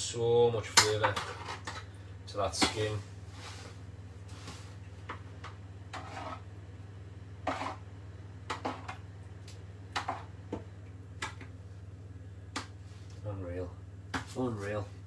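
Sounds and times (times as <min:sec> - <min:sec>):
steady low hum: 0:00.0 - 0:15.0
metal spoon scraping roasting tin: 0:05.9 - 0:06.4.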